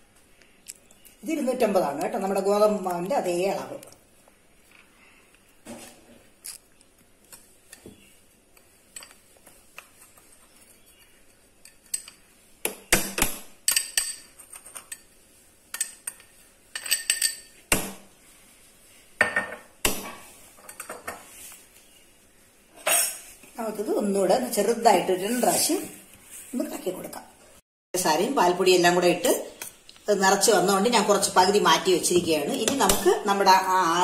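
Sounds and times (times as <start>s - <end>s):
spoon clinking and scraping in pot: 7.4s - 12.3s, 13.7s - 17.6s.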